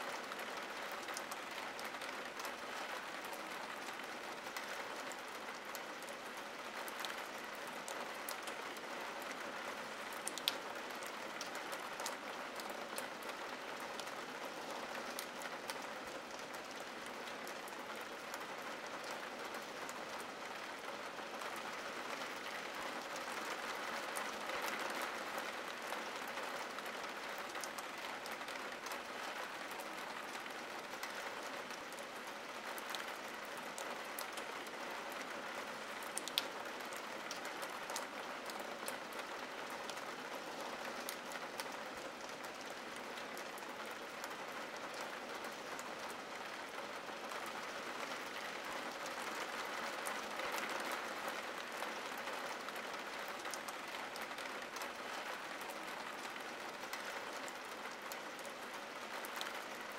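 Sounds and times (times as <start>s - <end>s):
rain on window glass: 0.1s - 59.9s.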